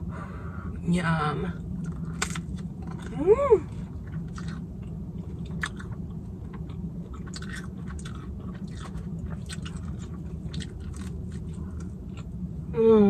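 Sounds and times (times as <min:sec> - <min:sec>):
steady low hum: 0:00.0 - 0:13.0
person chewing food: 0:03.8 - 0:12.4.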